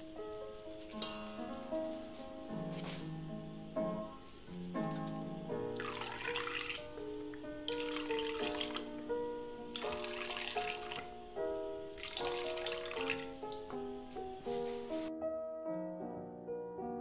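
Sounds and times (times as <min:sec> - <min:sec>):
plucked melody music: 0:00.0 - 0:15.3
juice squirting into metal bowl: 0:05.7 - 0:09.0, 0:09.6 - 0:14.9.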